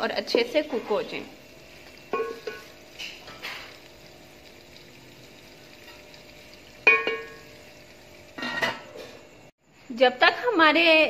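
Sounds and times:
food sizzling in pot: 0.0 - 11.0
metal cookware clank: 2.1 - 3.8, 6.8 - 7.5, 8.4 - 9.3.

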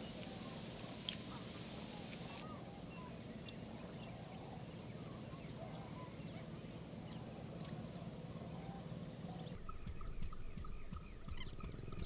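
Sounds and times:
bird chirps: 8.6 - 12.0.

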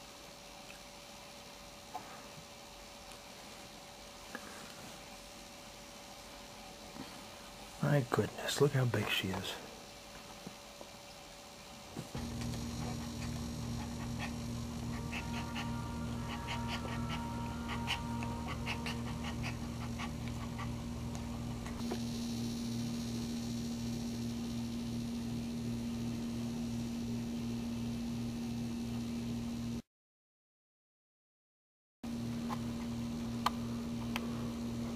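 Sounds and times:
low pulsing hum: 12.0 - 29.8
dog whining and whimpering: 12.9 - 21.0.

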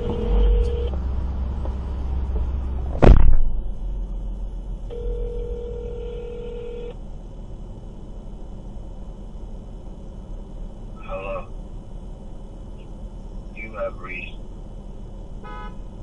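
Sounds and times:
telephone ringback tone: 0.0 - 0.9, 4.9 - 6.9
low rumble inside a car: 0.0 - 16.0
loud thump: 2.4 - 3.8.

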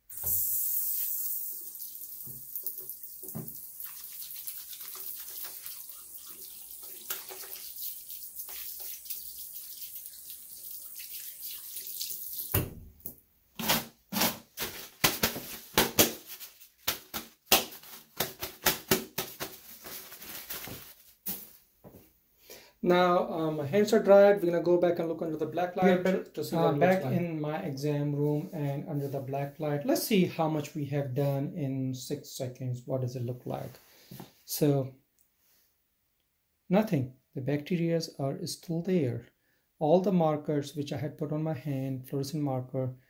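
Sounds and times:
faucet water splashing into sink: 0.0 - 13.1
crackling rustles of hand drying: 14.6 - 21.7.

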